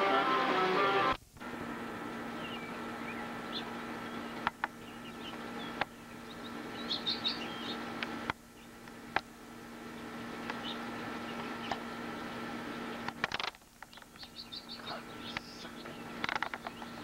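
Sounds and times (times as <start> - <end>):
steady low hum: 0.0 - 17.0
finches chirping: 2.3 - 8.8, 9.9 - 13.1, 13.8 - 17.0.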